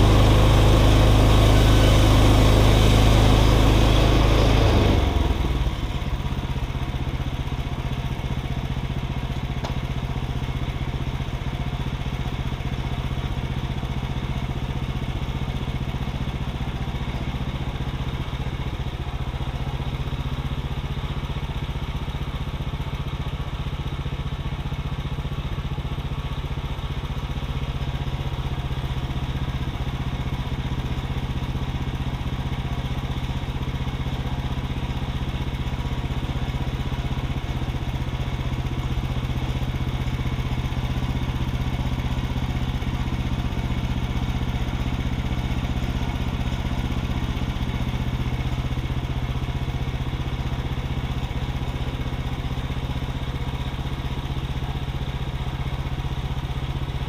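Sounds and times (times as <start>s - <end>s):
sawmill engine running: 0.0s - 22.3s.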